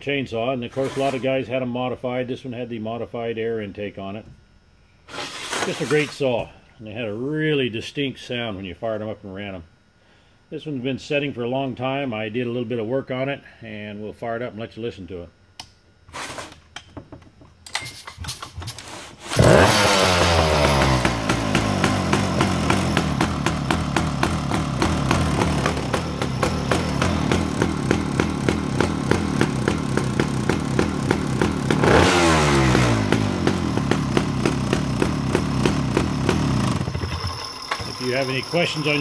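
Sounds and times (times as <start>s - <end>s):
chainsaw engine revving: 19.2s - 39.0s
chainsaw engine idling: 19.3s - 39.0s.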